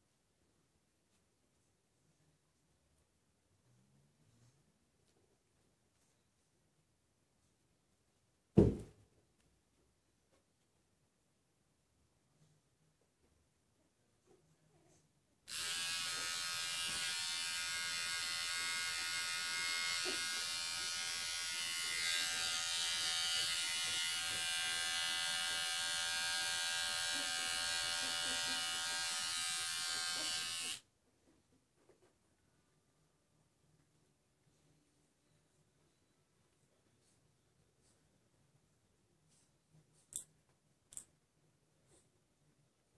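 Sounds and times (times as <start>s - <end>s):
electric grooming tool running: 15.5s - 30.8s.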